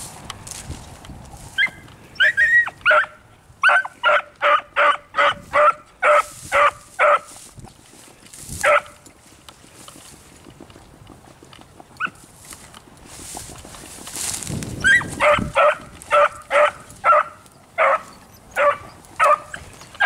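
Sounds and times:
dog barking: 2.2 - 7.3, 8.6 - 8.9, 14.9 - 19.6.

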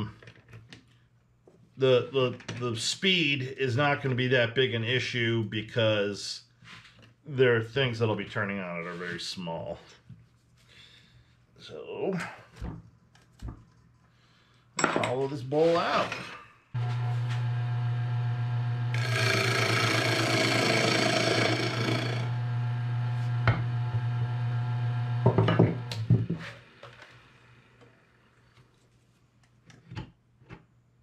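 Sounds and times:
turning tool scraping wood: 16.8 - 23.8
lathe motor hum: 16.8 - 26.0.

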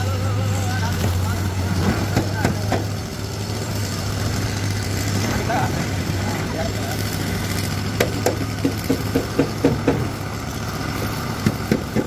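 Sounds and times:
engine idling: 0.0 - 12.0
sharp metal knocks: 8.0 - 10.1.

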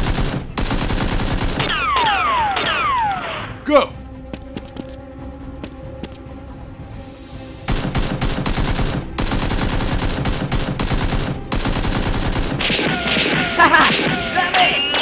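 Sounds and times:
machine-gun fire: 0.0 - 2.1, 7.7 - 14.3
background music: 0.0 - 15.0.

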